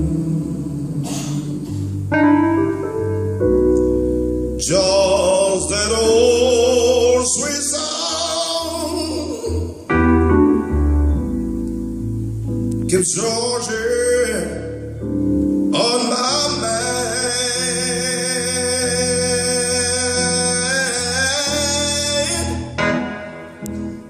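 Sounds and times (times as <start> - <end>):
keyboard chords with deep bass: 0.0 - 24.0
person singing with vibrato: 4.6 - 10.0, 15.7 - 23.2.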